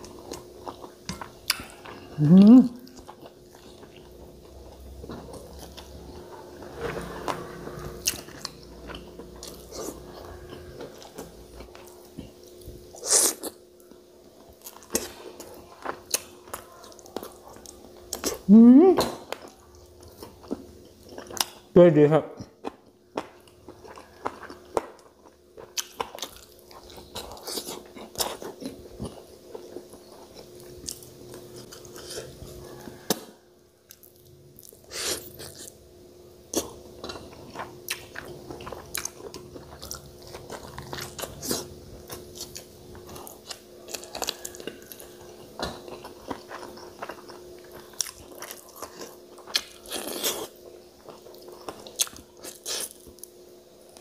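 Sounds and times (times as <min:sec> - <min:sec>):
chewing and biting: 0:36.5 - 0:53.2.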